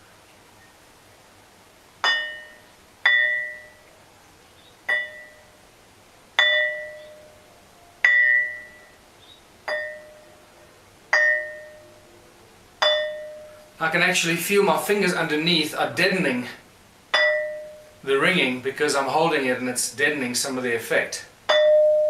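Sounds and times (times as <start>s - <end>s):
stone slab ringing when struck: 2.0s - 3.8s, 4.9s - 5.5s, 6.4s - 7.4s, 8.0s - 8.9s, 9.7s - 10.3s, 11.1s - 11.9s, 12.8s - 13.6s, 17.1s - 17.9s, 21.5s - 22.0s.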